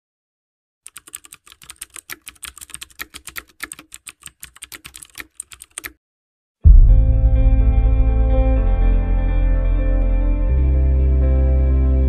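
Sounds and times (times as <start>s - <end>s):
keyboard key clicks: 0.9s - 6.0s.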